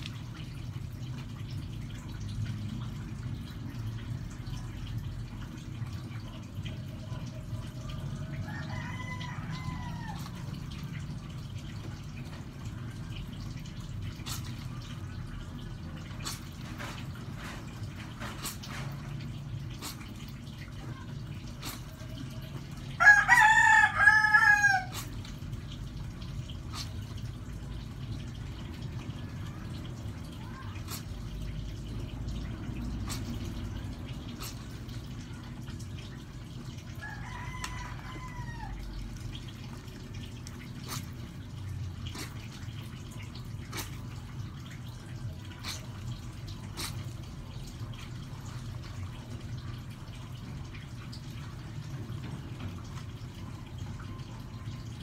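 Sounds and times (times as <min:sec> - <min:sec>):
water dripping and splashing: 0:00.0 - 0:55.0
rooster crowing: 0:08.2 - 0:10.4, 0:23.0 - 0:25.0, 0:37.0 - 0:38.8.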